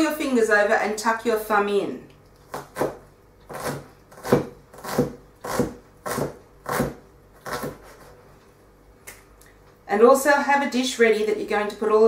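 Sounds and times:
knife slicing onion on chopping board: 2.5s - 8.2s.

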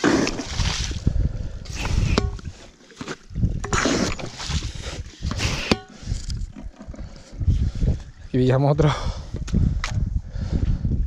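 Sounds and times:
wet sucking and squelching: 0.0s - 7.4s.

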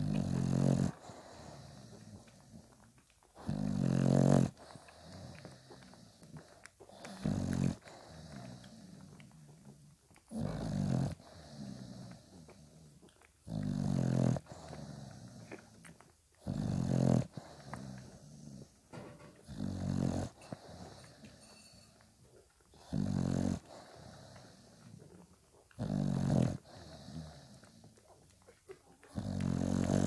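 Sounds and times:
dog snoring: 0.0s - 30.0s.

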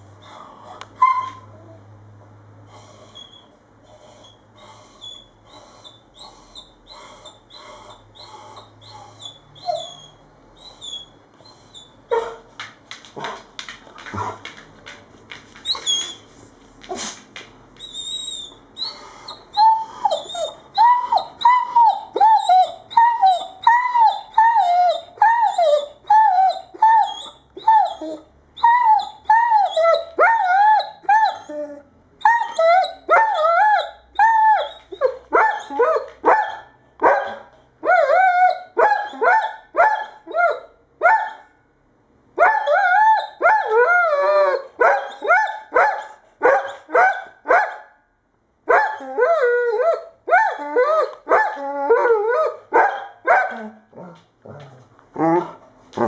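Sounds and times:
dog barking and whining: 1.0s - 1.8s, 5.0s - 12.5s, 17.8s - 41.6s, 42.4s - 48.0s, 48.7s - 56.0s.

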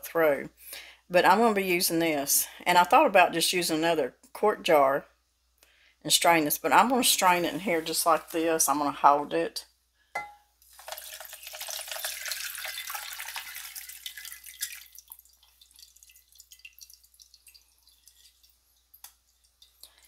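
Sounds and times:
liquid trickling and dripping: 10.6s - 20.0s
liquid pouring into a glass: 10.7s - 20.0s.

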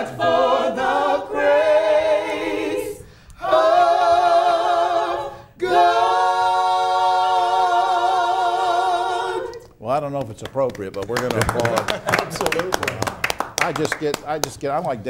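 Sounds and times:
choir singing in harmony: 0.0s - 9.6s
singers breathing: 3.0s - 3.4s.

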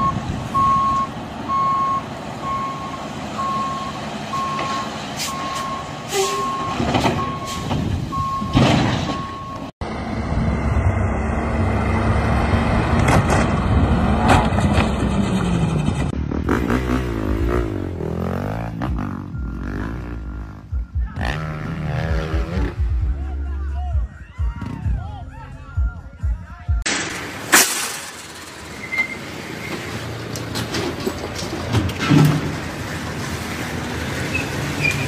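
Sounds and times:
truck reversing beeper: 0.0s - 10.9s, 17.7s - 21.1s, 28.3s - 29.8s
heavy truck engine rumbling: 0.0s - 35.0s
sharp knocks and crash: 6.8s - 9.4s, 26.8s - 28.6s.

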